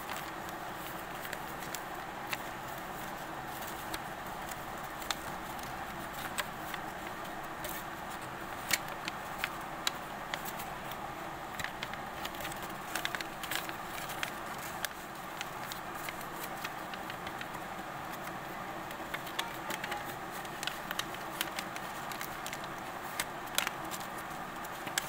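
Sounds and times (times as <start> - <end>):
paper folding crackles: 0.0 - 25.0
steady background hiss: 0.0 - 25.0.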